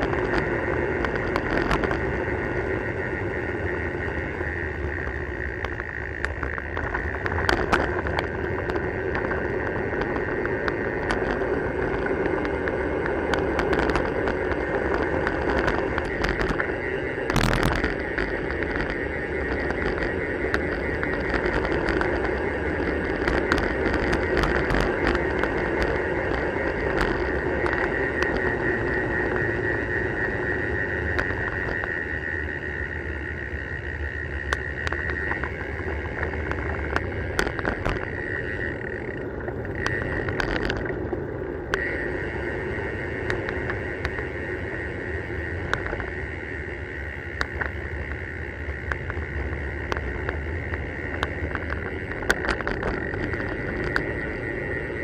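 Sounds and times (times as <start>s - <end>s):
steady high buzz: 0.0s - 55.0s
wind and tyres rumbling: 0.0s - 55.0s
sharp clicks and knocks: 5.6s - 28.5s, 34.4s - 41.9s, 48.8s - 54.2s.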